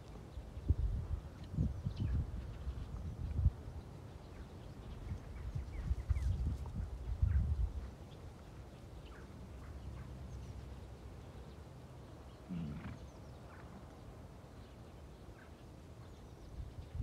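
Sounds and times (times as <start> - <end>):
wind noise on microphone: 0.0 - 8.0, 16.4 - 17.0
faint bird chirps: 12.2 - 17.0
short low animal call: 12.5 - 13.1.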